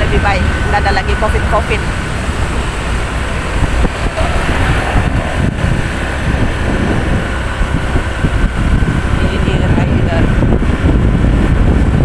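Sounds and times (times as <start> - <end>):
vehicle road and engine noise: 0.0 - 12.0
wind noise on microphone: 0.0 - 12.0.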